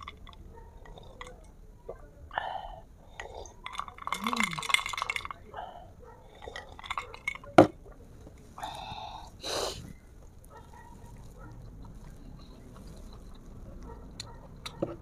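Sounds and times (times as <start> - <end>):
eating and table sounds: 0.0 - 2.1, 3.1 - 15.0
breathy exhale: 8.6 - 9.9.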